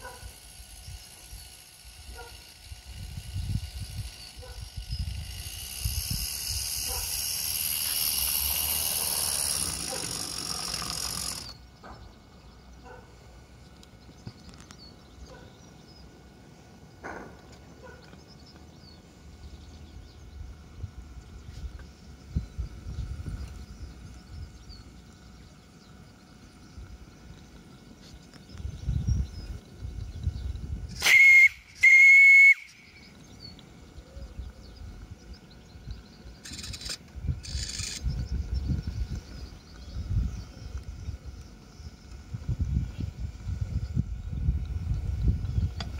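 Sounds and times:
steam hissing: 0:00.0 - 0:11.6, 0:30.9 - 0:32.8
steam whistle blasts: 0:31.0 - 0:32.8.

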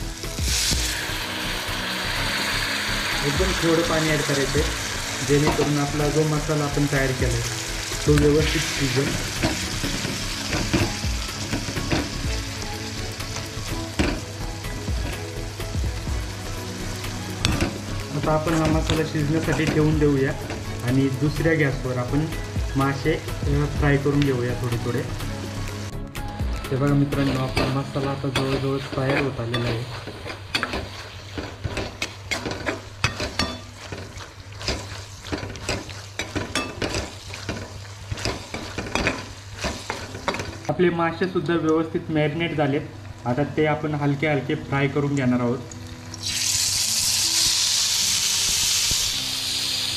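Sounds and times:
masala sizzling in a metal pan: 0:00.0 - 0:26.0, 0:26.6 - 0:49.9
steel spoon scraping a pan: 0:27.2 - 0:40.7.

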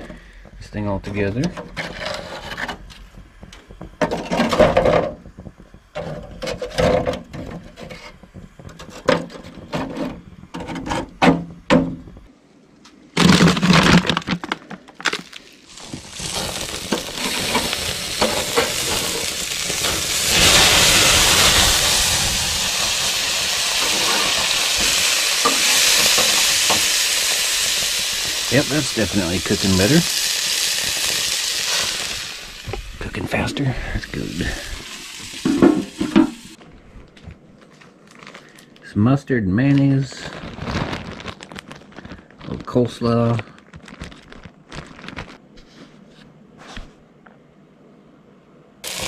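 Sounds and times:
burger patties sizzling: 0:14.9 - 0:36.6.

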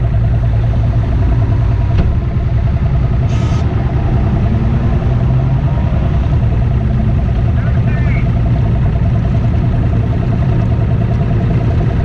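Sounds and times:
outboard motor idling: 0:00.0 - 0:12.0.

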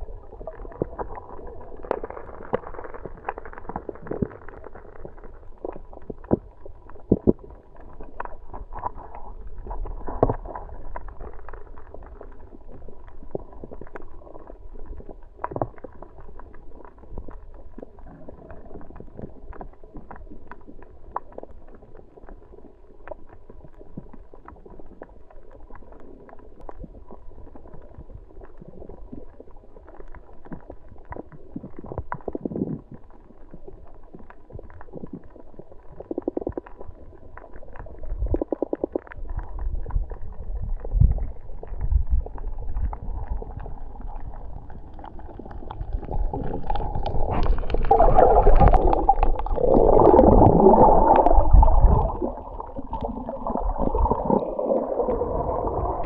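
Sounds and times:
underwater water wash: 0:00.0 - 0:56.0
sharp underwater clicks: 0:35.9 - 0:40.2.

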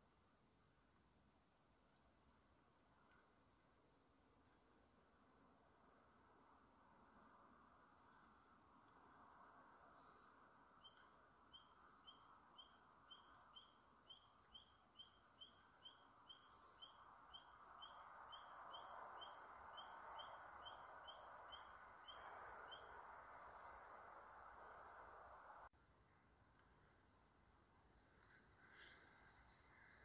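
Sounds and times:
soft hiss: 0:23.4 - 0:30.0.

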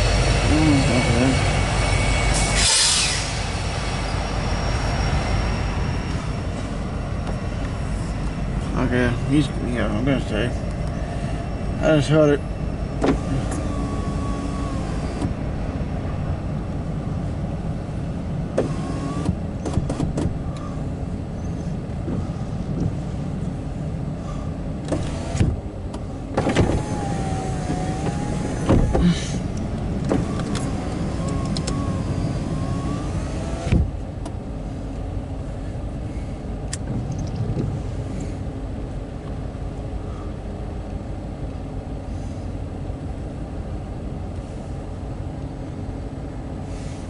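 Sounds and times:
car cabin rumble: 0:12.9 - 0:41.8
windshield wiper motor whining: 0:13.0 - 0:15.4, 0:18.5 - 0:20.7, 0:24.3 - 0:34.4.

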